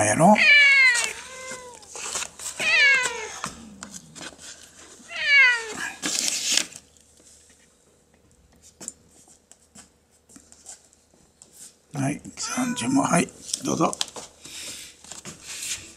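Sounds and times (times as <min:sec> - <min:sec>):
cat meowing: 0:00.4 - 0:02.0, 0:02.6 - 0:03.9, 0:05.1 - 0:05.8, 0:12.4 - 0:13.3.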